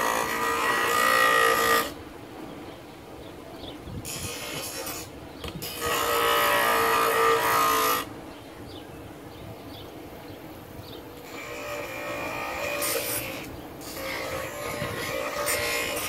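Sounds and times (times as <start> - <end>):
bench grinder grinding wood: 0.0 - 2.0, 4.1 - 8.1, 11.2 - 16.0
bench grinder running: 11.3 - 16.0.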